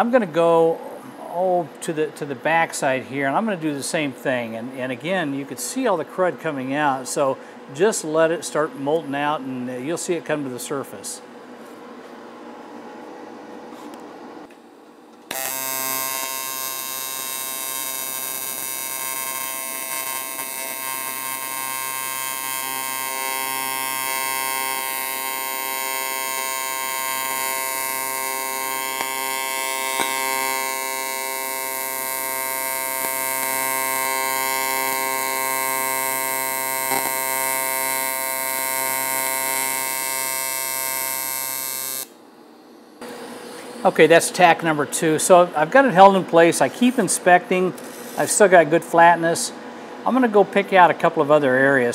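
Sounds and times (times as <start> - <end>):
welding arc buzz: 15.2 - 44.1.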